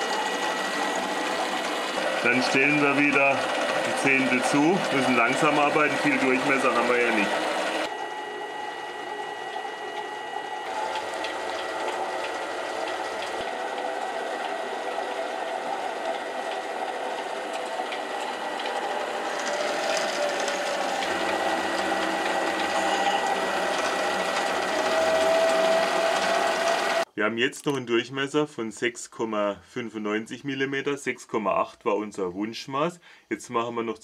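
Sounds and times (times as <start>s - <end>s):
lathe running with high whine: 0.0s - 27.1s.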